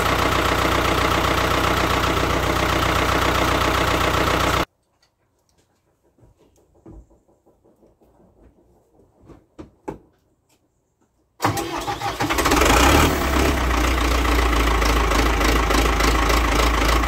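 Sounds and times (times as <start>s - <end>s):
tractor diesel engine starting: 0.0s - 4.7s, 11.4s - 17.0s.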